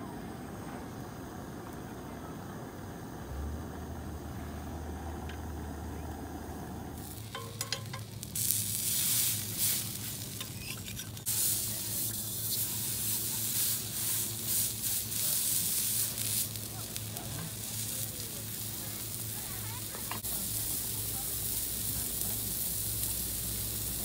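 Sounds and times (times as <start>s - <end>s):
low steady hum: 0.0s - 24.0s
patty sizzling on griddle: 4.0s - 24.0s
metal spatula tapping and scraping: 7.2s - 8.3s, 10.3s - 11.3s.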